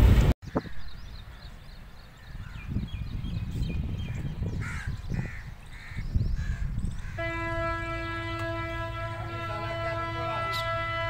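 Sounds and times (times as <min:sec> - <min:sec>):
loud bird calls: 0:00.5 - 0:07.3
locomotive horn: 0:07.1 - 0:11.0.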